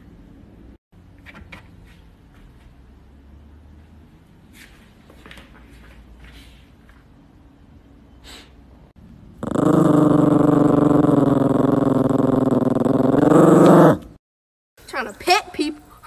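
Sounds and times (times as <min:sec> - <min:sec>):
dog growling: 0:09.4 - 0:14.1.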